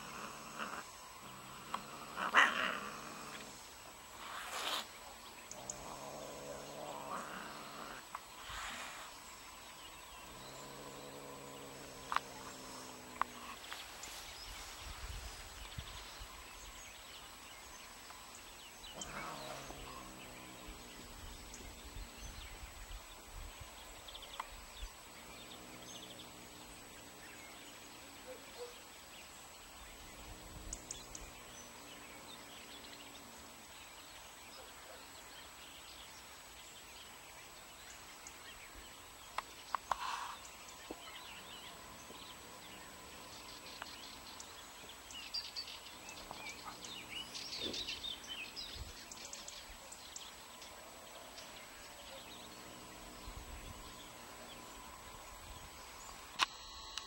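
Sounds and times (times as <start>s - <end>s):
cats growling yowls: 0.0s - 3.6s, 18.9s - 21.6s.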